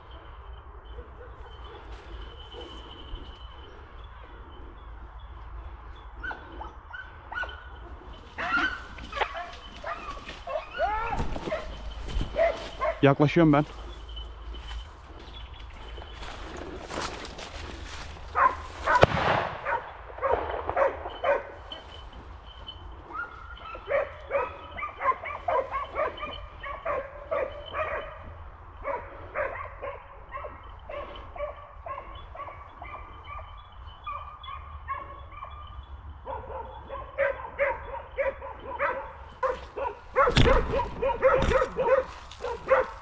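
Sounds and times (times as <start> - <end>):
dogs barking: 0.0 - 43.0
twigs rustling and snapping: 8.4 - 13.0, 39.4 - 43.0.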